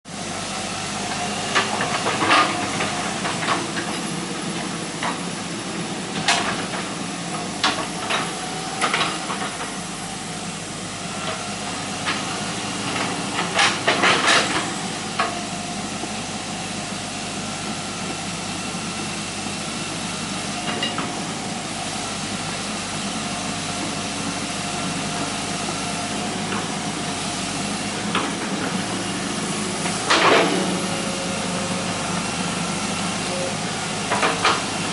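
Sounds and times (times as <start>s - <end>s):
excavator diesel engine running: 0.1s - 34.9s
bucket and tracks clanking: 1.1s - 5.3s, 11.2s - 15.5s, 24.9s - 34.9s
hydraulic whine: 5.4s - 34.9s.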